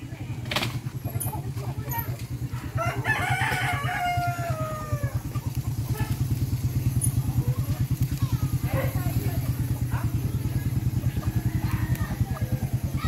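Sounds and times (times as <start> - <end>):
engine running: 0.0 - 13.0
rooster crowing: 2.7 - 5.3, 11.2 - 13.0.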